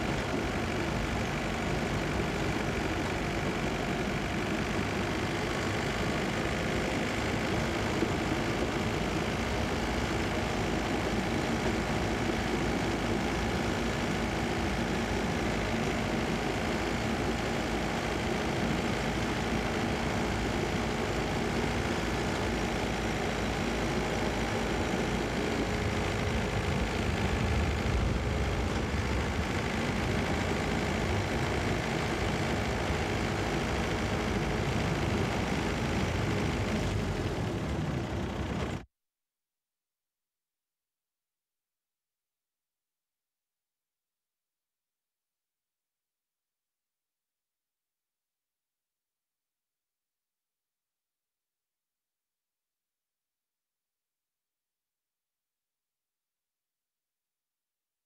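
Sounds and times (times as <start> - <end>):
rail vehicle rumbling on track: 24.4 - 38.8.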